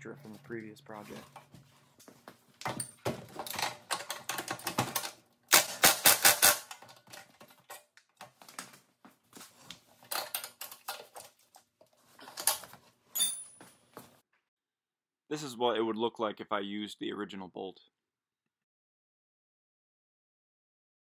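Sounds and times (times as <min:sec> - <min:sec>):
sharp metallic clicks of tools: 0:03.5 - 0:06.9.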